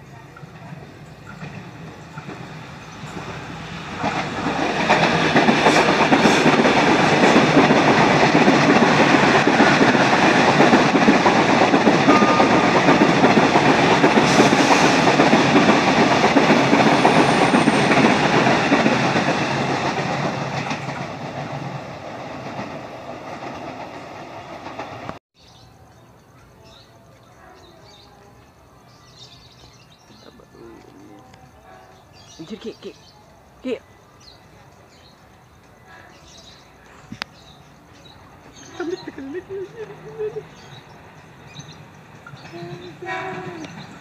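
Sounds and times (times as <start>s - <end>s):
electric train passing: 0.0s - 44.0s.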